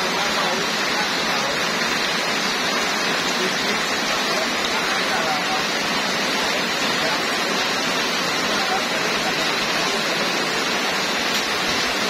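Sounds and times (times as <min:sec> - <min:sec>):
heavy rain splashing into puddles: 0:00.0 - 0:12.0.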